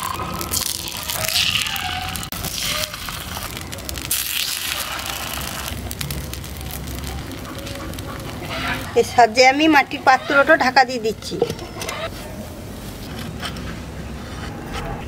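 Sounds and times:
batter sizzling in hot oil: 0.0s - 9.6s.

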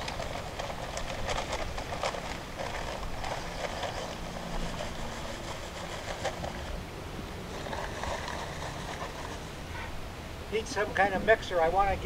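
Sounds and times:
dry concrete mix pouring onto rocks: 0.0s - 5.8s.

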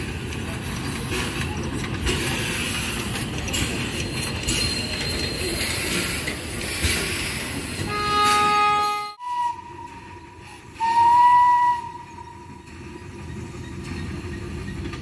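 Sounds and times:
train rumbling on rails: 0.0s - 15.0s
train horn: 7.9s - 12.6s.

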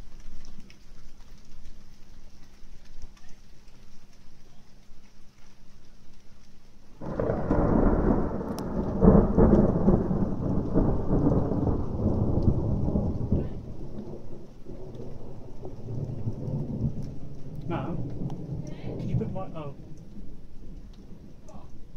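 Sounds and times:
thunder rumbling and cracking: 7.0s - 21.9s.

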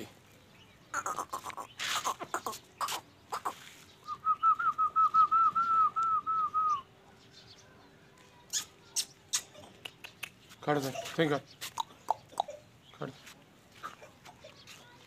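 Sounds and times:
high whistled chirps: 4.0s - 6.9s.

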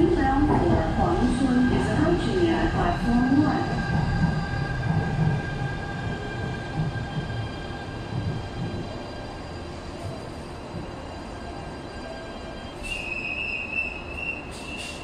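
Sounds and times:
train cars rumbling: 0.0s - 15.0s.

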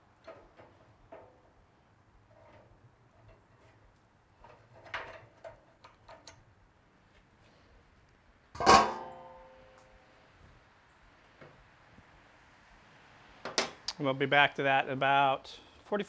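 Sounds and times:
metal lid clanging on drum: 8.6s - 9.6s.

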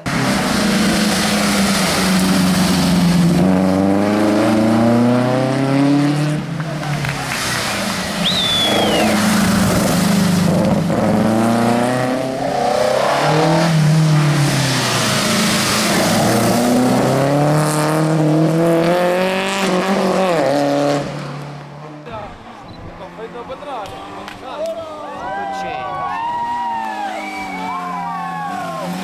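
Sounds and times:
rally car engines revving: 0.0s - 29.0s
high falling squeal: 8.2s - 9.2s.

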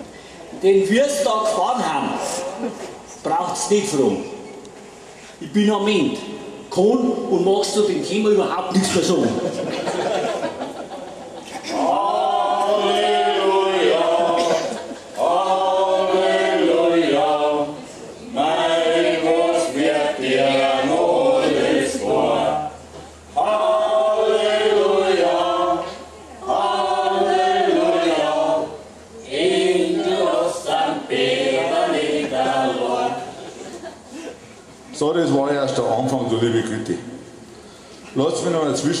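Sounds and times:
group of men and women singing: 11.5s - 33.9s.

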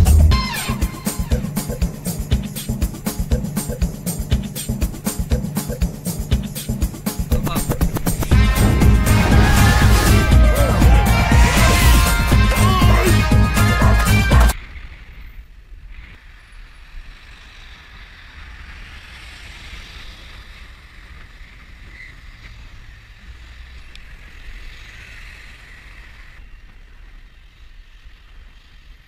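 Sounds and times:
tyre and road hiss: 14.1s - 29.0s.

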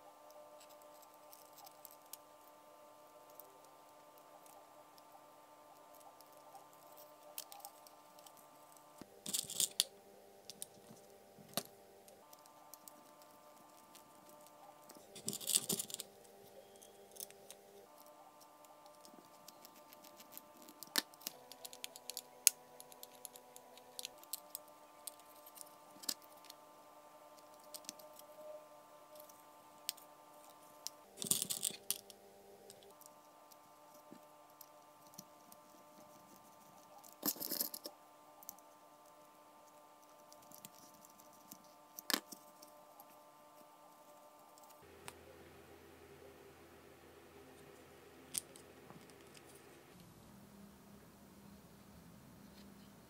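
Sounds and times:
plastic parts rattling: 15.0s - 16.1s.

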